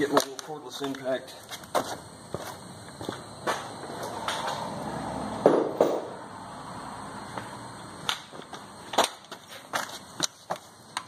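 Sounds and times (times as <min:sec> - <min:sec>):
hand tools clicking and knocking: 0:00.0 - 0:01.7.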